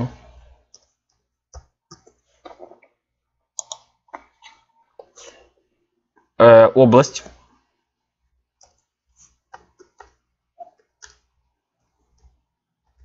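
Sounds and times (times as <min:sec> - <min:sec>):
computer keyboard keystrokes: 0:03.6 - 0:03.9.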